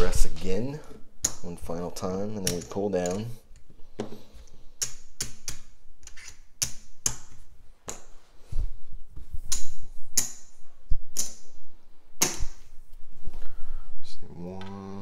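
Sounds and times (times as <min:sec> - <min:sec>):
casino chips clicking: 0:04.8 - 0:07.3.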